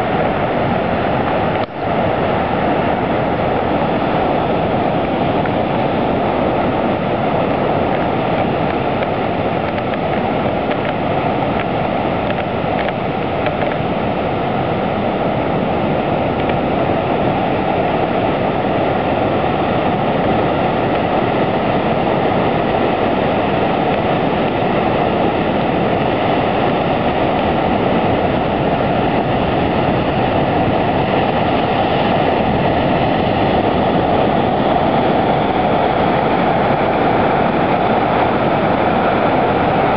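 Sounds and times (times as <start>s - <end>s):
ocean surf breaking on rocks: 0.0s - 39.9s.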